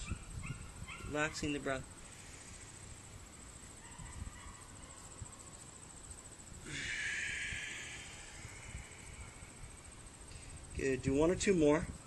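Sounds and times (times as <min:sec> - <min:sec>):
insects chirping: 0:00.0 - 0:12.0
breathy exhale: 0:06.6 - 0:10.7.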